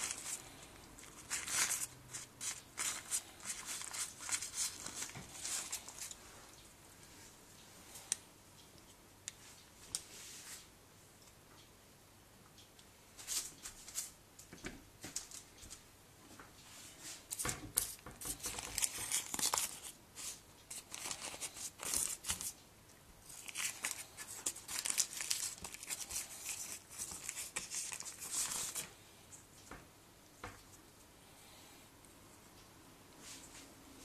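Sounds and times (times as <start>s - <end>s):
baking paper crinkling: 0.0s - 6.2s, 17.2s - 22.6s, 23.2s - 29.0s.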